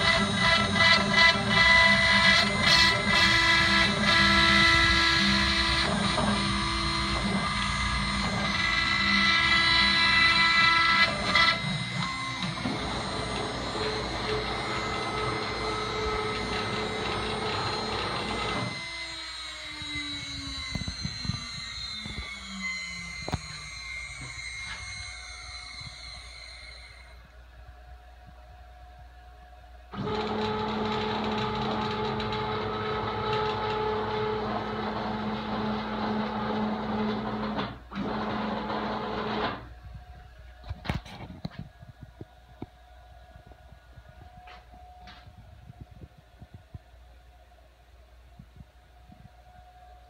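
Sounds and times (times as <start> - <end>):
heavy cutting noise: 0.0 - 19.1
moving gantry whirr: 0.0 - 27.5, 29.9 - 46.5
router spindle whine: 0.0 - 47.5.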